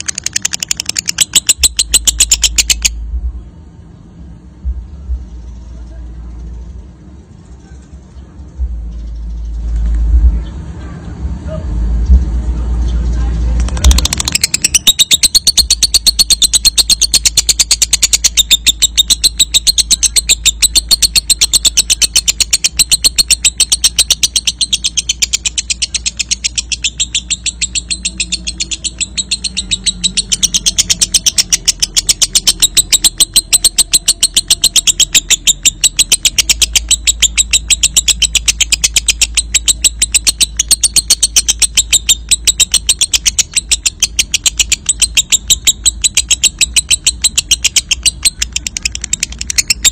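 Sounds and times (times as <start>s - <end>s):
lovebird rapid high chirps: 0.0s - 3.1s, 13.5s - 49.9s.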